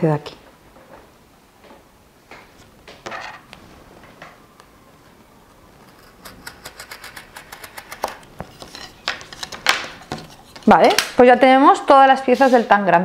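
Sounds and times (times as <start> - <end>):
knife cutting foam: 5.8 - 11.0.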